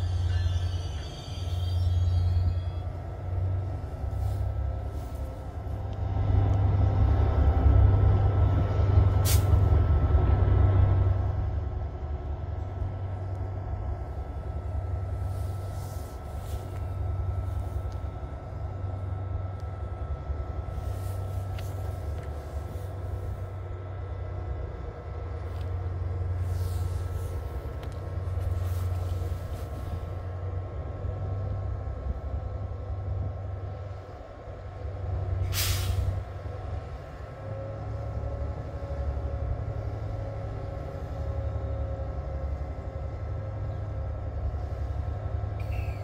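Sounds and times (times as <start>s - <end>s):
diesel engine low rumble: 0.0s - 46.0s
air brake hissing: 9.2s - 9.6s, 35.4s - 36.2s, 45.6s - 46.0s.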